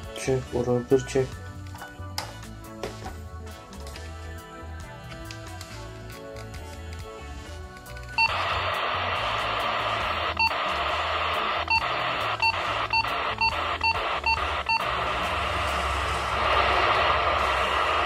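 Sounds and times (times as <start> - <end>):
radio static hiss: 8.2 - 18.0.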